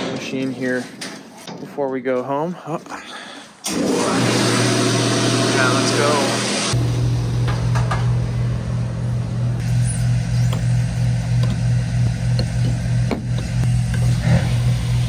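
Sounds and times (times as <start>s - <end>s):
fuel pump humming: 3.2s - 15.0s.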